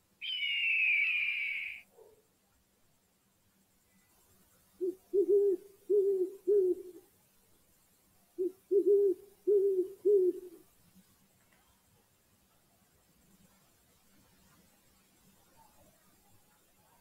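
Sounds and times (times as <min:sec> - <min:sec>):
owl hooting: 0:00.2 - 0:01.9, 0:04.8 - 0:07.0, 0:08.4 - 0:10.6.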